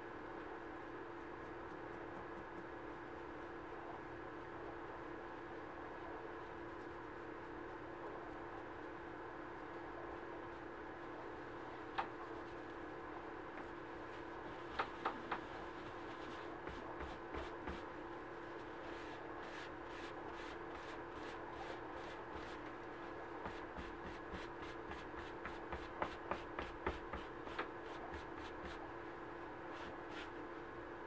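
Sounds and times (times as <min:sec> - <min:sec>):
steady hum: 0:00.0 - 0:31.0
pad rubbing on leather: 0:15.7 - 0:17.9, 0:18.6 - 0:22.8, 0:23.4 - 0:28.8, 0:29.7 - 0:30.4.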